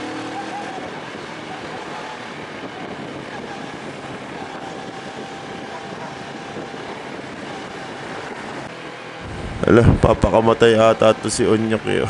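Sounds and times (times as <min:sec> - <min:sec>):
motorcycle running: 0:00.0 - 0:12.0
wind rushing over microphone: 0:00.0 - 0:12.0.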